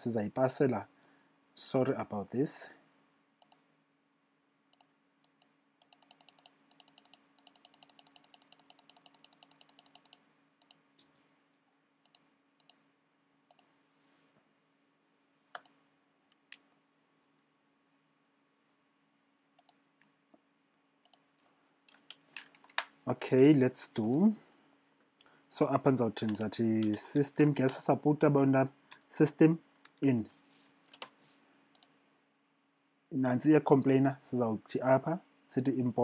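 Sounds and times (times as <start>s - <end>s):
computer mouse clicking: 4.7s - 11.2s, 12.0s - 12.8s, 13.5s - 13.7s, 15.5s - 16.6s, 19.6s - 20.1s, 21.0s - 21.2s, 31.7s - 31.9s.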